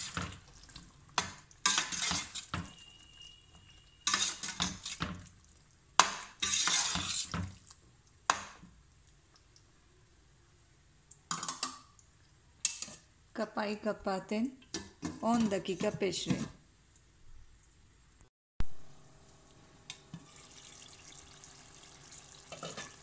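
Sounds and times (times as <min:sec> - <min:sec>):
spoon stirring in metal pot: 0:00.0 - 0:05.4, 0:06.0 - 0:08.5, 0:12.6 - 0:13.1, 0:22.5 - 0:23.0.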